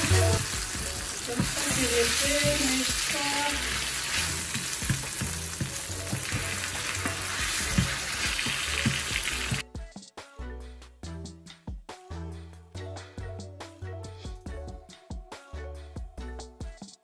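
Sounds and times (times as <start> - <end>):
vegetables sizzling in hot oil: 0.0 - 9.6.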